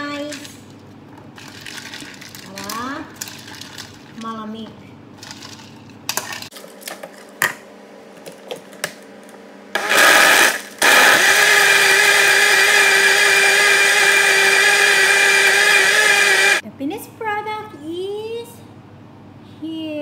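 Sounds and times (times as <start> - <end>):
blender crushing ice: 9.8 - 16.6.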